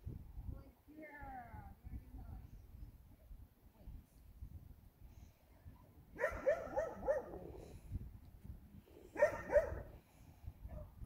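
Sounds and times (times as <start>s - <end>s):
dog barking in high yips: 6.2s - 7.4s, 9.2s - 9.8s.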